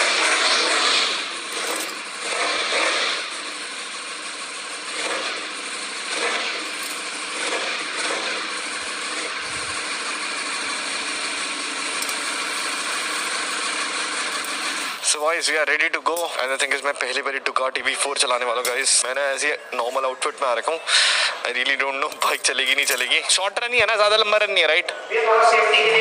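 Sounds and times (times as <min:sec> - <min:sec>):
motorcycle engine idling: 0:03.2 - 0:15.7.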